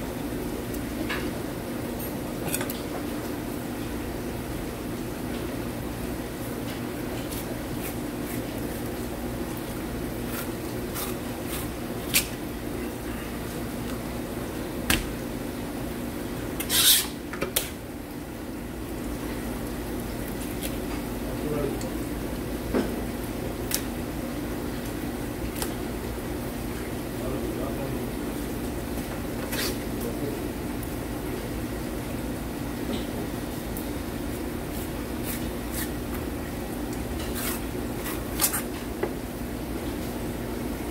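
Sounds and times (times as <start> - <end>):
knife scraping fish skin: 10.2 - 12.4, 16.6 - 17.2, 29.5 - 29.8, 34.7 - 36.0, 37.2 - 38.9
knife rasping scrape: 16.6 - 17.2, 35.2 - 36.0, 37.2 - 38.8.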